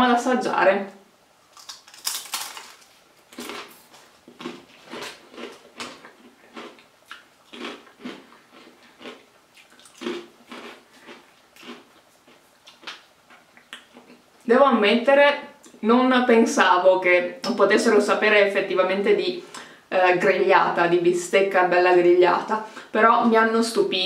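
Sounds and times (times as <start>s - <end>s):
crisps being crunched: 1.5s - 13.0s.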